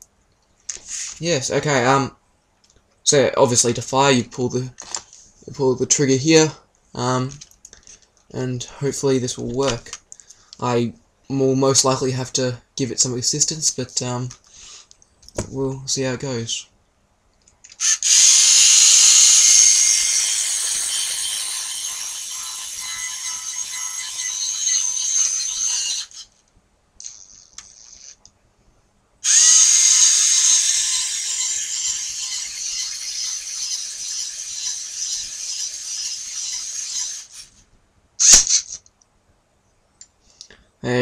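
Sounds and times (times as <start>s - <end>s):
toy motor and gears running: 17.7s - 26.4s, 27.0s - 28.2s, 29.2s - 37.6s, 38.2s - 38.8s.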